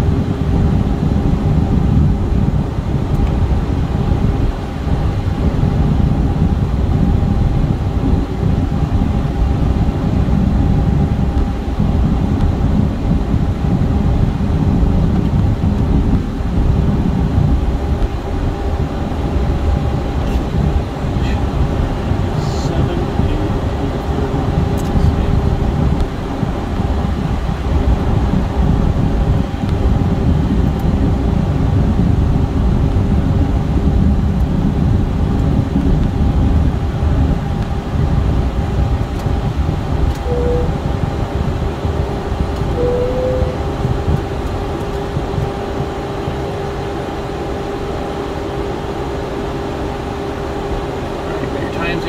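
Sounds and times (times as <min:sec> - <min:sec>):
jet engines humming at idle: 0:00.0 - 0:52.0
low rumble: 0:00.0 - 0:52.0
brief chirps: 0:40.3 - 0:40.7.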